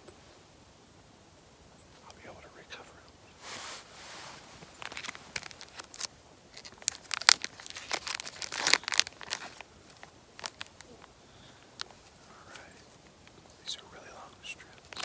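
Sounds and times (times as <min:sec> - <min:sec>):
packet crinkling and tearing: 0:04.8 - 0:11.0, 0:14.8 - 0:15.0.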